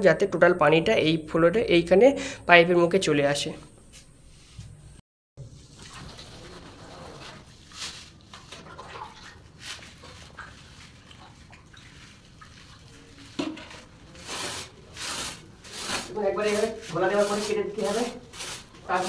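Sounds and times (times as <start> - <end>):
water poured from a mug: 5.4 - 15.3
hand smearing wet mortar: 6.0 - 13.4, 14.1 - 19.0.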